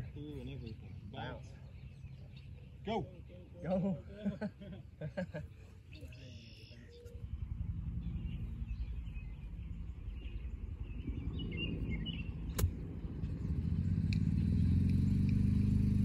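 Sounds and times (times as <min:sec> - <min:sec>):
birds chirping: 0:00.0 - 0:16.0
engine humming: 0:00.0 - 0:16.0
golf club striking ball: 0:12.5 - 0:13.0.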